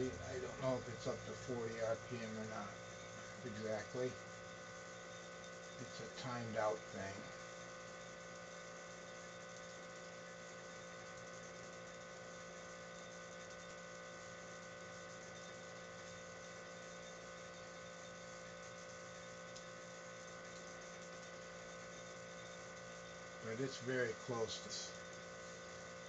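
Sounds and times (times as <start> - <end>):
steady electrical hum: 0.0 - 26.0.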